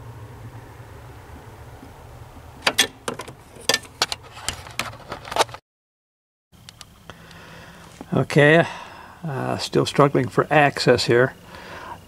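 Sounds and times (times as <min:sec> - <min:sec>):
tools clicking and knocking: 0:02.6 - 0:05.6.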